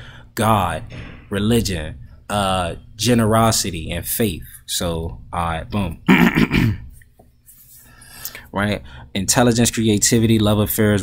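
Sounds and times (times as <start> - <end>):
man clearing his throat: 6.0 - 6.9.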